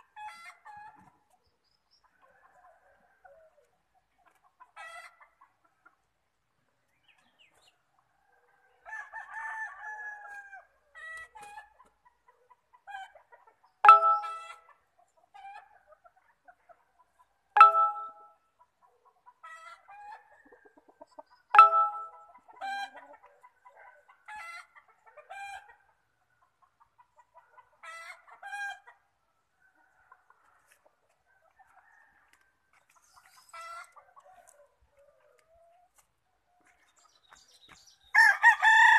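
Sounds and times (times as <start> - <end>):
chickens clucking: 0.1 - 8.1, 10.2 - 18.0, 18.6 - 37.9
loud chicken calls: 38.1 - 38.9.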